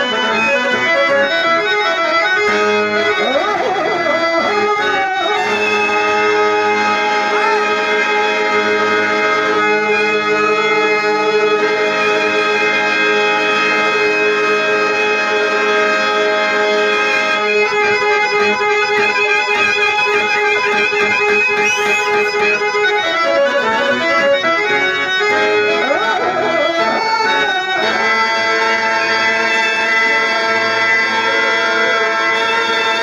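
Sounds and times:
harmonium playing: 0.0 - 33.0.

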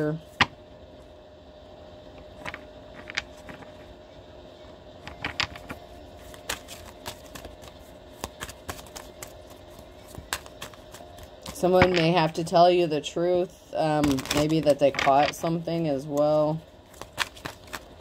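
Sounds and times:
faint steady hum: 0.0 - 18.0
cards clicking and tapping: 5.1 - 12.2, 14.0 - 15.5, 16.1 - 18.0.

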